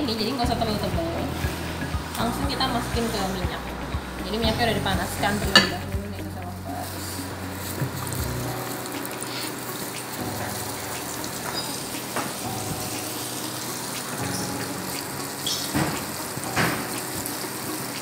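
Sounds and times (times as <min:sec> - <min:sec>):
chicken deep-frying in oil: 0:04.3 - 0:18.0.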